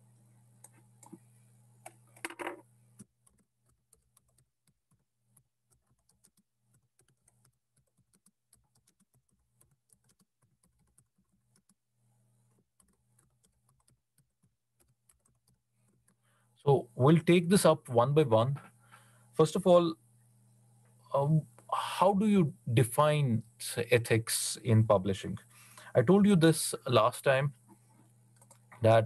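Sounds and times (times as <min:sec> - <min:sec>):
low steady hum: 0:00.0 - 0:03.4, 0:14.9 - 0:29.0
typing on keyboard: 0:02.2 - 0:11.8, 0:12.5 - 0:16.2.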